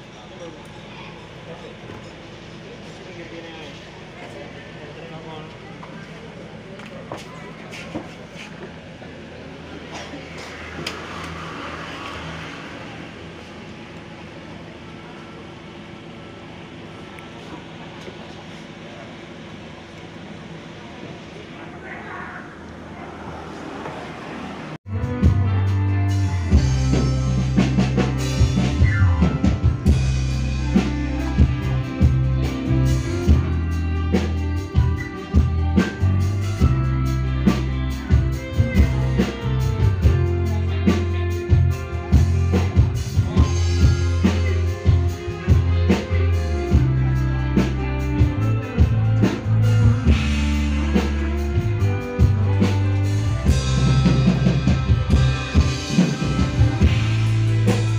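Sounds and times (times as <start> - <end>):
live band through pa system: 0.0 - 57.9
heavy bass line: 9.3 - 14.0, 24.9 - 57.9.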